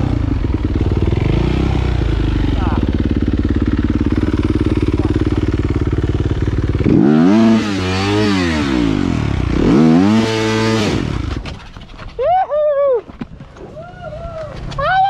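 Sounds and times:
dirt bike engine revving: 0:00.0 - 0:11.4.

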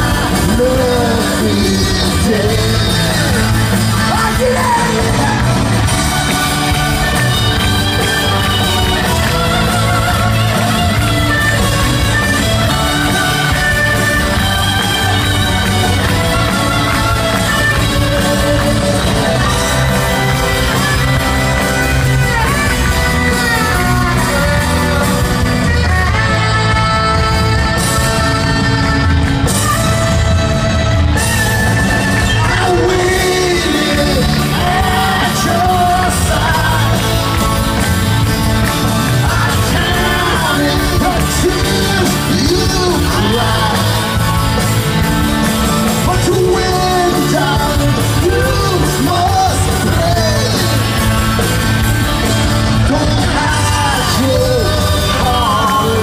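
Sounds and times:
man singing: 0:00.0 - 0:29.0, 0:31.8 - 0:37.8, 0:38.7 - 0:44.6, 0:45.8 - 0:51.4, 0:52.6 - 0:56.0
live rock band playing loudly: 0:00.0 - 0:56.0.

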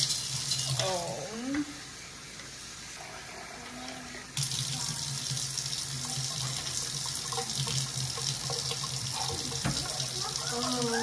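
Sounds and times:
faucet running into sink: 0:03.5 - 0:11.0.

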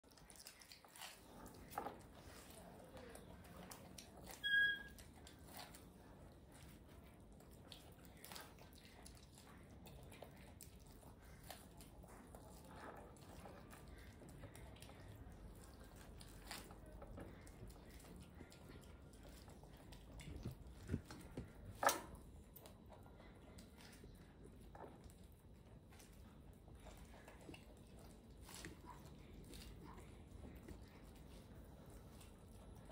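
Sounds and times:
wet chewing clicks: 0:00.0 - 0:32.9
monkey squeaking: 0:04.4 - 0:04.9.

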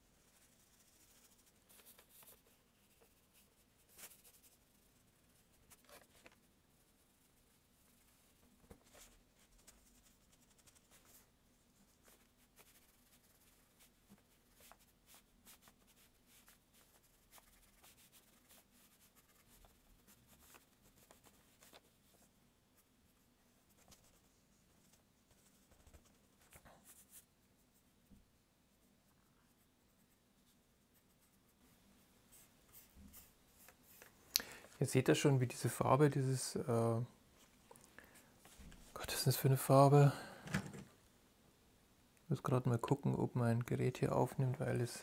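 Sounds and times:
paintbrush strokes on board: 0:00.0 - 0:22.9, 0:28.7 - 0:34.2.

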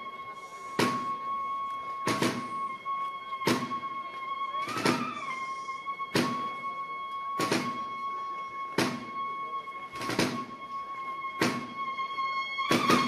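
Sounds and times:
slow drum strokes: 0:00.5 - 0:02.8, 0:03.4 - 0:04.0, 0:04.6 - 0:06.7, 0:07.4 - 0:08.0.

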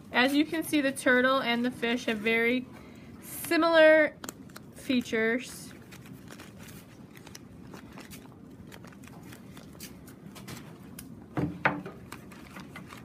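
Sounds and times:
newspaper crinkling: 0:04.2 - 0:11.1, 0:12.0 - 0:13.0.

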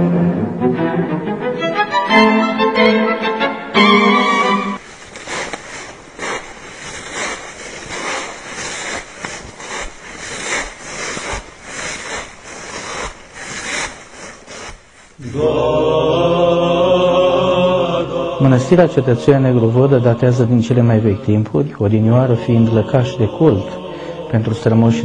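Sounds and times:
steady noisy rustle: 0:04.8 - 0:15.2
man chanting: 0:15.2 - 0:25.0.

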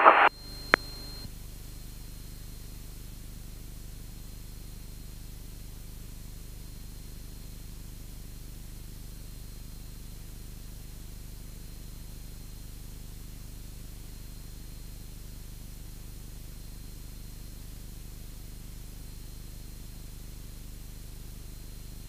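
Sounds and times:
static hiss: 0:00.0 - 0:01.2.

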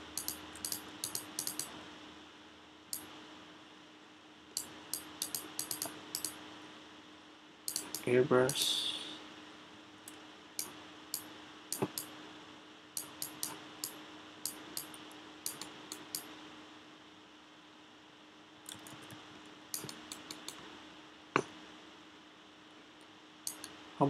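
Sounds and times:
faint steady hum: 0:00.0 - 0:24.0
mouse clicks: 0:00.1 - 0:01.7, 0:04.6 - 0:06.4, 0:07.7 - 0:08.1, 0:10.1 - 0:12.1, 0:13.0 - 0:16.3, 0:18.7 - 0:20.6, 0:23.4 - 0:23.8
stylus tapping on tablet: 0:04.6 - 0:06.4, 0:07.7 - 0:08.1, 0:10.6 - 0:12.1, 0:19.8 - 0:20.6.

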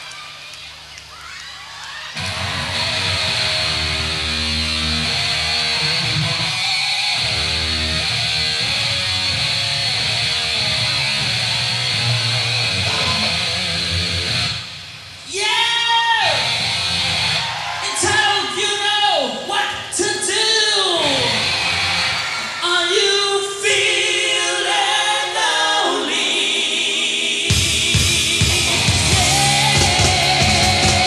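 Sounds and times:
bass: 0:00.0 - 0:15.3, 0:16.2 - 0:18.2, 0:20.9 - 0:22.4, 0:27.5 - 0:31.0
distorted electric guitar chords: 0:02.2 - 0:15.2, 0:16.3 - 0:17.4, 0:21.1 - 0:22.2, 0:27.5 - 0:31.0.

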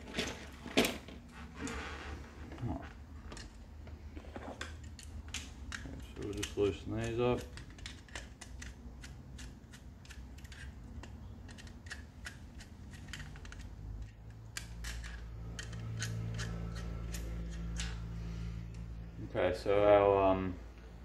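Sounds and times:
low steady hum: 0:00.0 - 0:21.0
hand tool clicking and snipping: 0:04.6 - 0:18.1.

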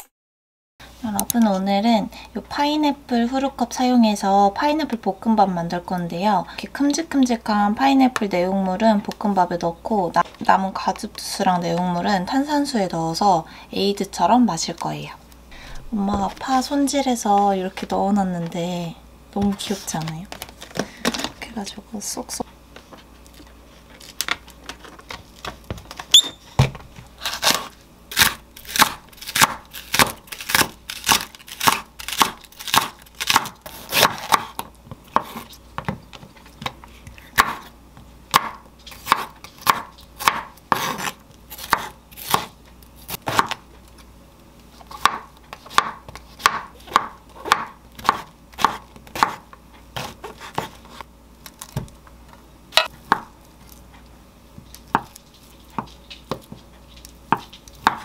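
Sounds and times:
knife chopping on wooden board: 0:27.4 - 0:36.0, 0:37.4 - 0:37.7, 0:38.3 - 0:42.5, 0:43.1 - 0:43.6, 0:44.9 - 0:49.4, 0:50.0 - 0:51.0, 0:52.8 - 0:53.3, 0:57.3 - 0:58.0.

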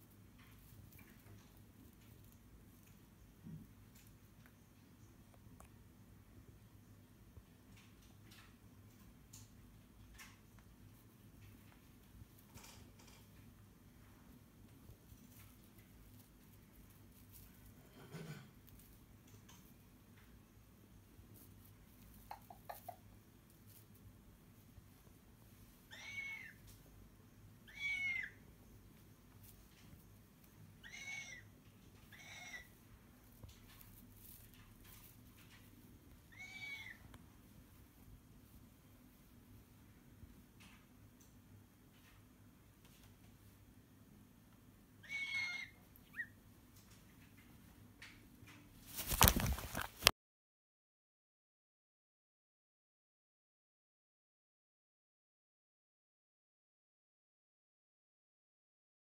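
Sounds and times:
cockatoo harsh calls: 0:25.9 - 0:26.6, 0:27.7 - 0:28.4, 0:30.8 - 0:31.5, 0:32.1 - 0:32.7, 0:36.3 - 0:37.0, 0:45.0 - 0:46.3
cockatoo call: 0:45.0 - 0:46.4
rustling and knocking on microphone: 0:49.0 - 0:50.1.

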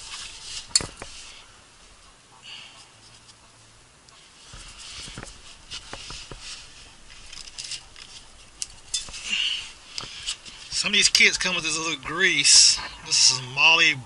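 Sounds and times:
tools clicking and tapping: 0:07.2 - 0:09.2.

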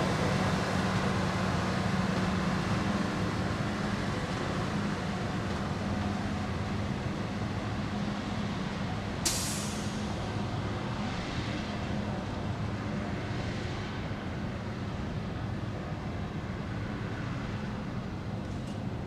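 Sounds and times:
diesel engine humming: 0:00.0 - 0:19.0
air brake hiss: 0:09.2 - 0:10.1.

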